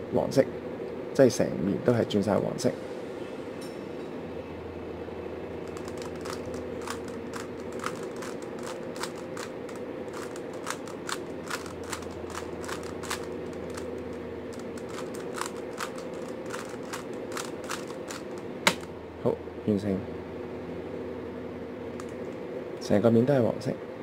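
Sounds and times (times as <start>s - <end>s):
puzzle cube plastic clicks: 5.6s - 18.8s.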